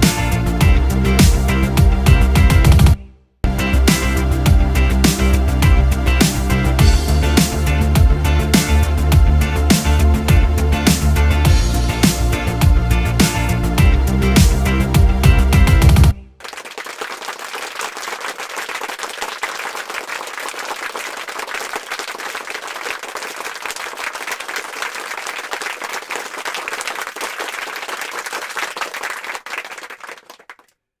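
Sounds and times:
many hands clapping: 0.0s - 3.0s, 14.3s - 14.7s, 15.3s - 30.8s.

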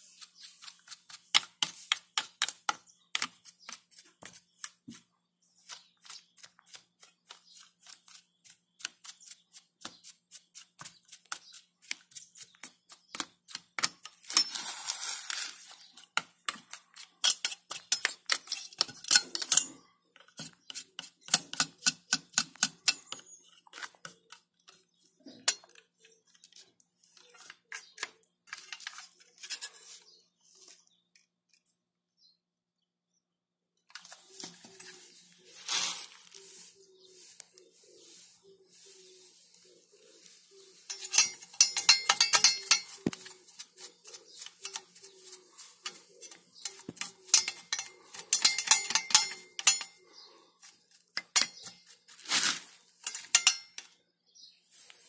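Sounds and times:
metal scraping: 40.1s - 50.0s.

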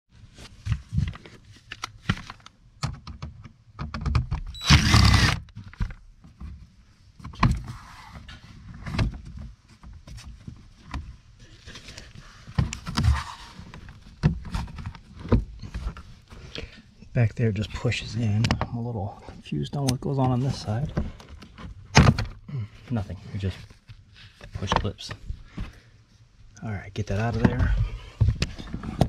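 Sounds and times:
cordless drill running: 4.6s - 5.4s.

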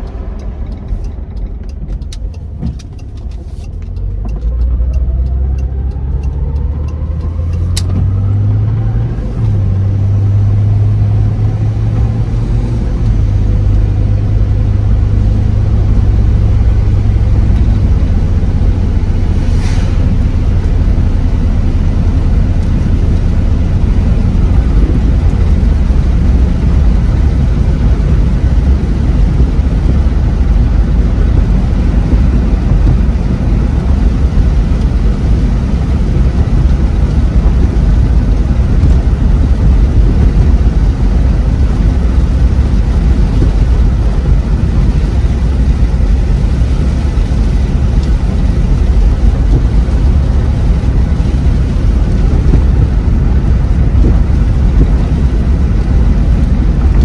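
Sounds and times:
car engine accelerating: 0.0s - 57.0s
road noise: 0.0s - 57.0s.

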